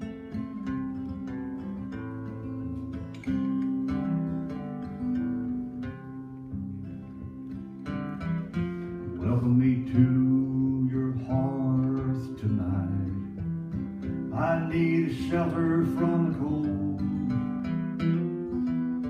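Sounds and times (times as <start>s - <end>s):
acoustic guitar: 0.0s - 19.0s
man singing: 9.0s - 13.4s, 14.3s - 17.5s.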